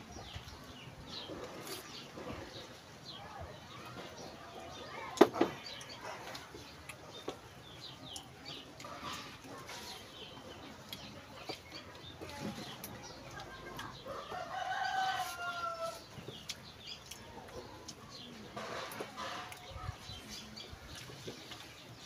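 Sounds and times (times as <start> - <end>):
small birds chirping: 0.0 - 22.0
rooster crowing: 14.1 - 16.0.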